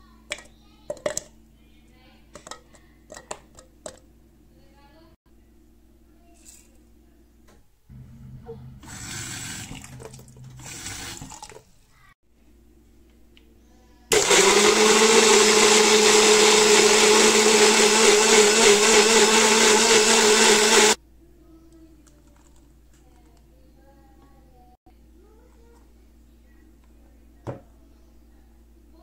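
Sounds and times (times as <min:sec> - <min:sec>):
blender motor whine: 0:14.1 - 0:21.0.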